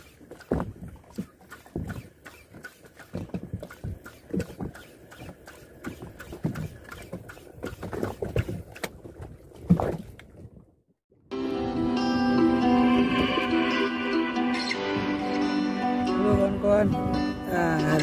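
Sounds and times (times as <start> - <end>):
knocks and clatter on a boat: 0.0 - 10.8, 16.1 - 18.0.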